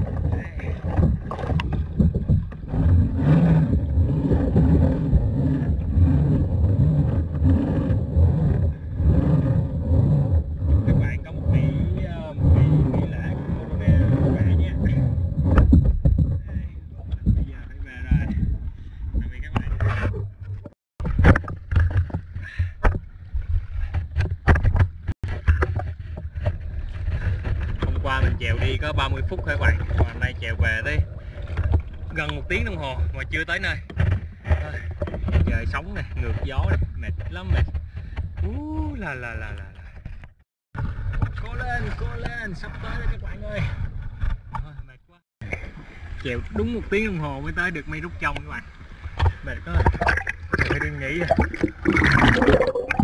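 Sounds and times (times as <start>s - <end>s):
paddle strokes splashing: 0.0s - 15.7s, 16.9s - 33.2s, 45.4s - 53.0s
low rumble: 0.0s - 22.3s
wind buffeting microphone: 0.0s - 22.4s
water slapping plastic hull: 0.0s - 43.0s, 43.7s - 53.0s.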